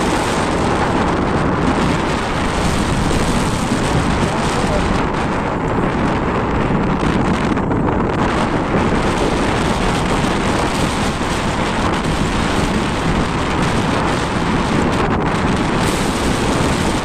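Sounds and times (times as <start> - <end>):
waves washing: 0.0 - 17.0
wind buffeting microphone: 0.0 - 17.0.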